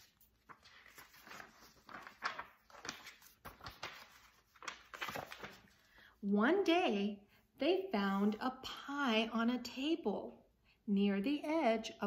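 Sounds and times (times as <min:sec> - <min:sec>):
book page turning: 0:00.0 - 0:05.9.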